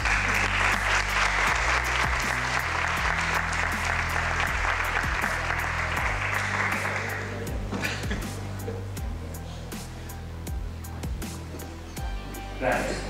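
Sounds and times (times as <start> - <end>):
audience applauding: 0.0 - 7.6
background music with steady beat: 0.0 - 13.0.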